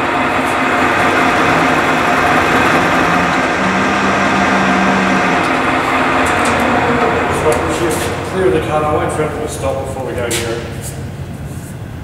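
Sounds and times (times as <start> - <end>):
milling machine cutting metal: 0.0 - 9.5
low hum: 0.0 - 10.1
second low tone: 1.2 - 8.3.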